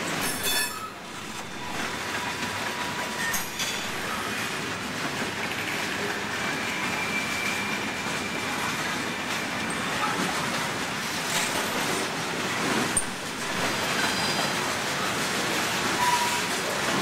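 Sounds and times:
freight train wheels rumbling: 0.0 - 17.0
high wheel squeal: 0.2 - 4.5, 6.4 - 8.7, 13.0 - 15.1, 15.9 - 16.6.

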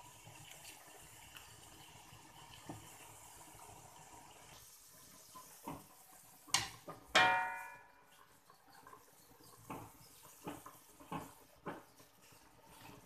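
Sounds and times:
knock on metal pot: 6.6 - 7.8.

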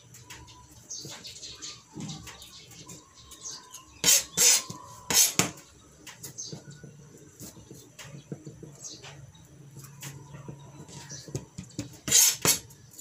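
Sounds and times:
knife scraping strokes: 4.0 - 5.6, 12.0 - 13.0.

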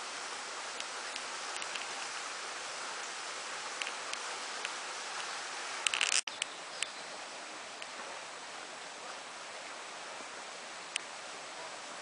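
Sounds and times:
mountain stream rushing: 0.0 - 12.0.

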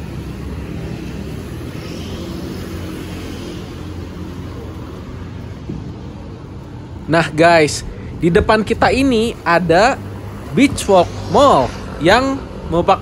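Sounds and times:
traffic engines rumbling: 0.0 - 13.0.

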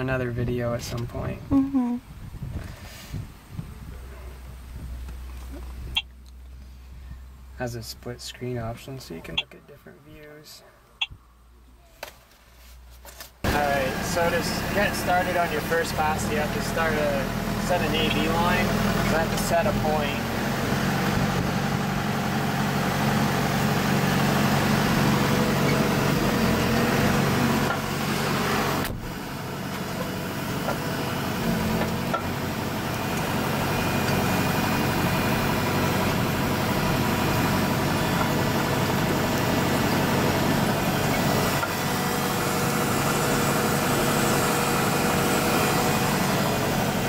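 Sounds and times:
tractor engine running: 13.4 - 47.0.

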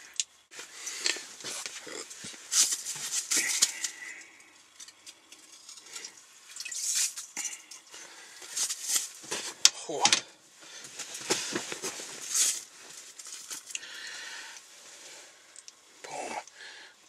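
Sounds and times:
rustling and scraping: 0.5 - 9.7, 10.6 - 13.7.

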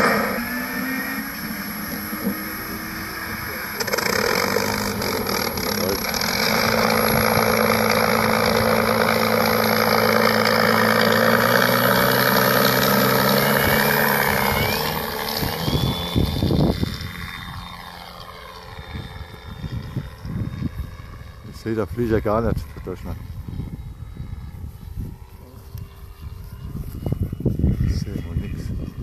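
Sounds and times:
model plane engine rumble: 0.0 - 29.0
propeller whine: 0.0 - 29.0
wind buffeting microphone: 13.1 - 18.0, 18.7 - 29.0.

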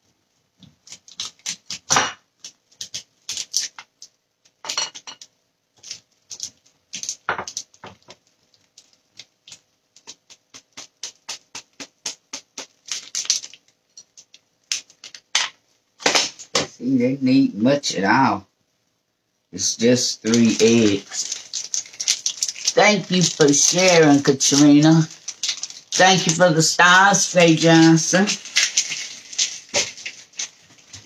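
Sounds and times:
cheese grating on metal grater: 20.3 - 31.0.

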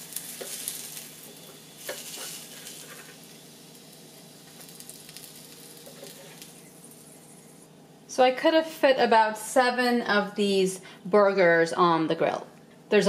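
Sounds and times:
burgers sizzling on electric grill: 0.0 - 7.7
spatula scraping and tapping: 0.3 - 0.7.

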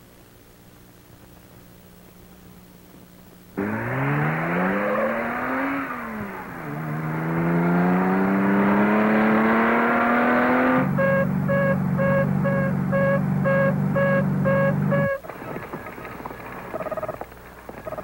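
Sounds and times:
car engine accelerating: 3.6 - 18.0
electronic beeping: 10.5 - 15.3
low hum: 10.6 - 18.0.

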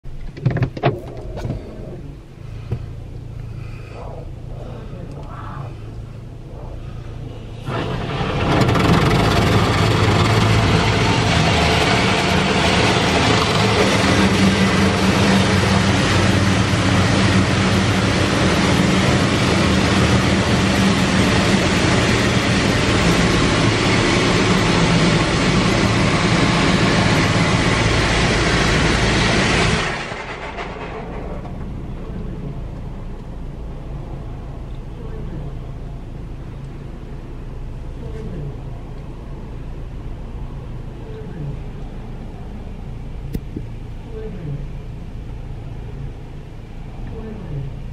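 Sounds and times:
low hum: 0.9 - 47.9
car wash water spray: 5.9 - 34.4.

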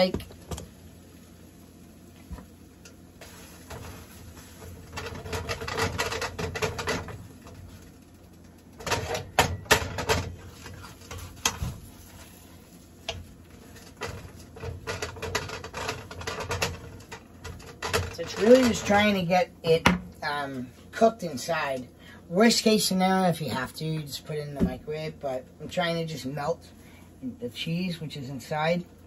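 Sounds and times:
spatula scraping in a frying pan: 3.2 - 7.1, 10.4 - 18.9
sharp clicks and knocks: 4.8 - 7.6, 13.1 - 18.9.

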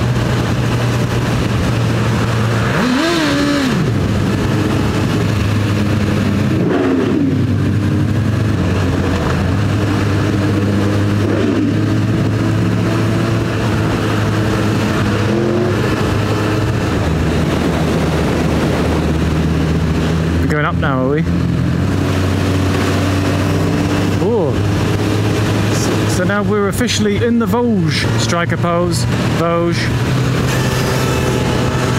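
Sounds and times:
wind on microphone: 0.0 - 20.5
motorcycle engine running: 0.0 - 31.9.

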